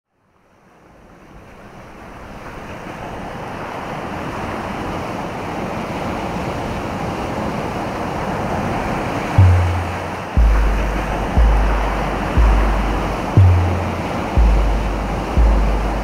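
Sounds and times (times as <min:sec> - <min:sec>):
ocean surf rushing: 0:07.2 - 0:16.0.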